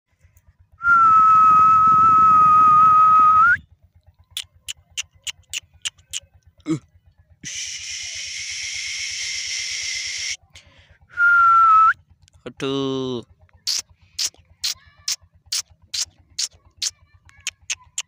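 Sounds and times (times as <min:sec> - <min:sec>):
person whistling a long note: 0:00.8 - 0:03.6, 0:11.1 - 0:12.0
sharp clicks: 0:04.3 - 0:06.3, 0:15.5 - 0:18.0.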